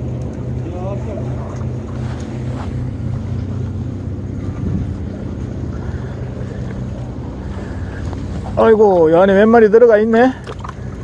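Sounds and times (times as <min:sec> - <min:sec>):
low engine drone: 0:00.0 - 0:11.0
wind noise on microphone: 0:04.2 - 0:05.6.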